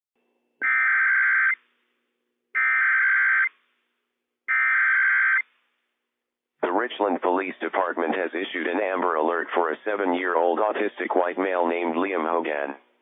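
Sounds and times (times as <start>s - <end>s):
bursts of data tones: 0.6s - 1.6s, 2.6s - 3.5s, 4.5s - 5.4s.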